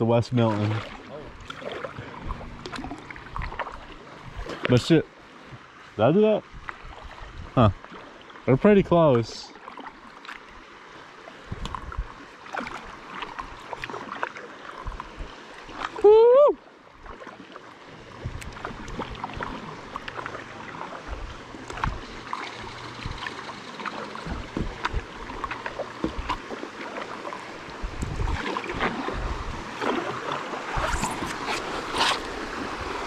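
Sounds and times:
river water splashing and trickling: 0:00.0 - 0:33.0
low thumps: 0:21.1 - 0:23.5, 0:24.2 - 0:26.4.

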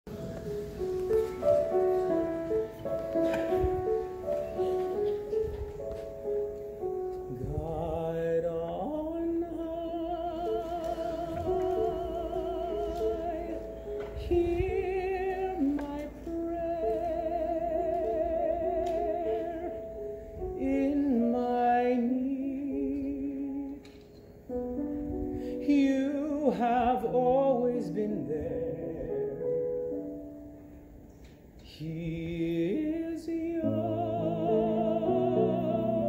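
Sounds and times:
piano notes: 0:00.0 - 0:36.0
sustained melody with vibrato: 0:00.1 - 0:23.7, 0:32.1 - 0:36.0.

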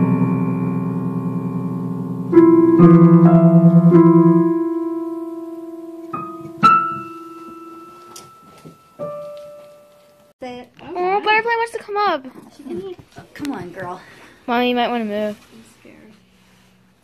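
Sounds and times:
piano notes from cat on keys: 0:00.0 - 0:10.3.

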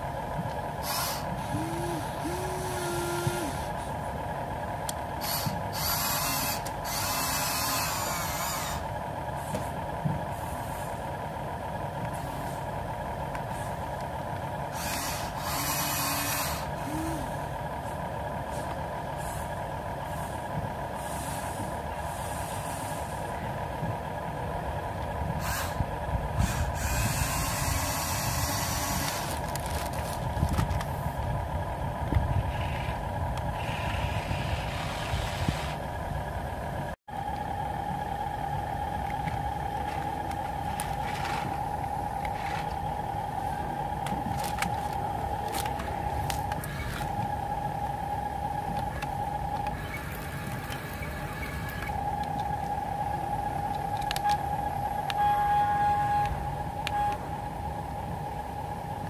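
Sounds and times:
toy electric motors whirring: 0:00.8 - 0:03.7, 0:05.2 - 0:08.8, 0:14.7 - 0:17.2, 0:25.4 - 0:25.8, 0:26.4 - 0:30.9, 0:44.0 - 0:47.3.

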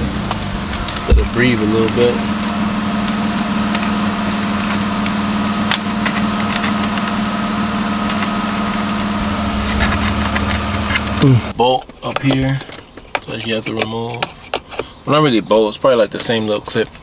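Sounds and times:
car engine idling: 0:00.0 - 0:13.3.

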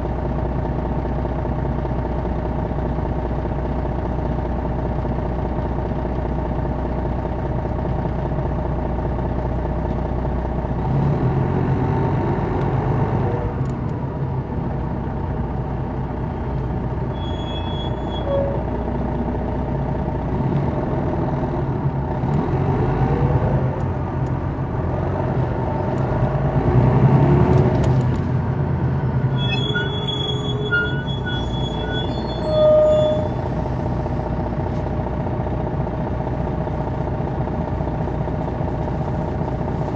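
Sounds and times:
diesel bus engine revving: 0:10.5 - 0:39.9
high-pitched squeals: 0:17.1 - 0:18.7, 0:29.2 - 0:33.5.

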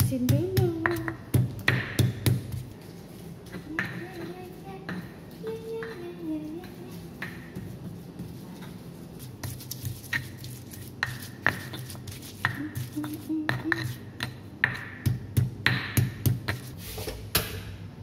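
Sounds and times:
stone pestle grinding in mortar: 0:06.6 - 0:16.8.

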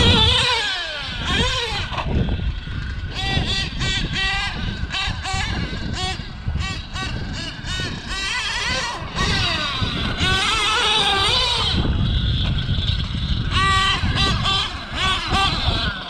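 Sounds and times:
nitro engine revving: 0:00.0 - 0:16.0.

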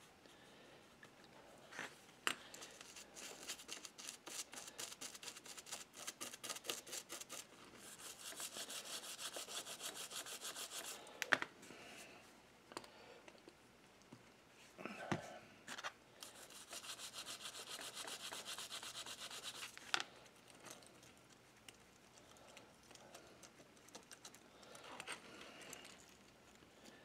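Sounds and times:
toothbrush scrubbing metal: 0:02.8 - 0:11.0, 0:16.2 - 0:19.8.

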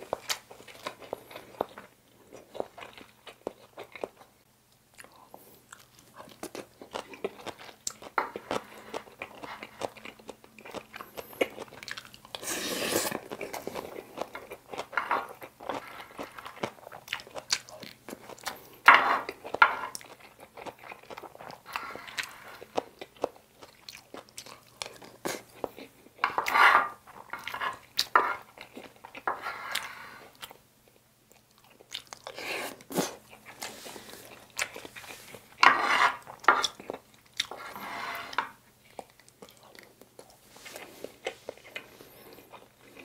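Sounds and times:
close chewing and mouth sounds: 0:00.0 - 0:37.7, 0:38.4 - 0:43.0
spoon scraping metal tray: 0:26.2 - 0:28.4, 0:29.3 - 0:30.2, 0:35.3 - 0:36.6, 0:37.5 - 0:38.6.

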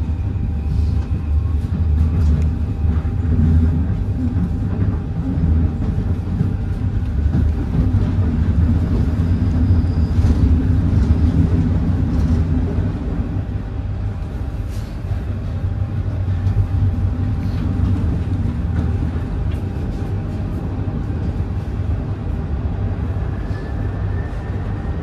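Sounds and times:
train rumble inside carriage: 0:00.0 - 0:25.0
faint high squeals: 0:09.1 - 0:10.5.

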